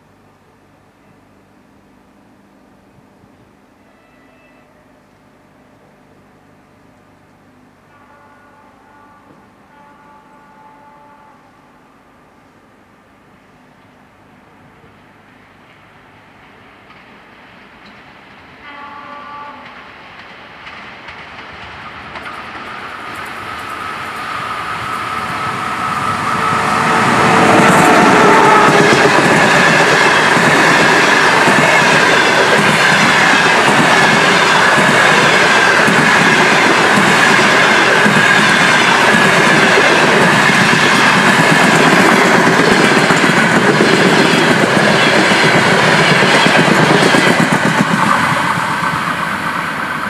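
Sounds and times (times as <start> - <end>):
train wheels clattering over rail joints: 19.6 - 24.2.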